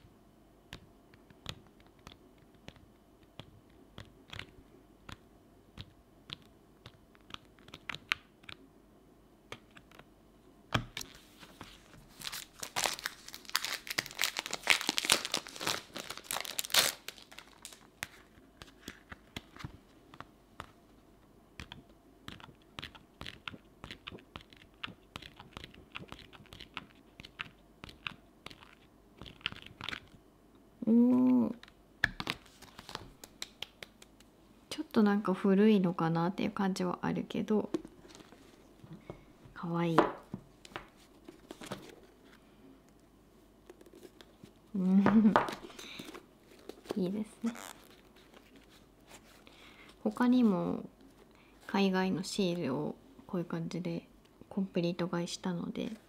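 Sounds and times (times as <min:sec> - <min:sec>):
loud paper crinkling: 0:11.0 - 0:19.6
paper pages turning and rustling: 0:11.0 - 0:19.9, 0:32.2 - 0:33.2, 0:40.6 - 0:42.4.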